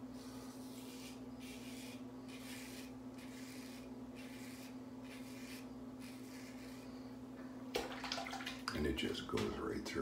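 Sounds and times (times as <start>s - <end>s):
steady low hum: 0.0s - 8.0s.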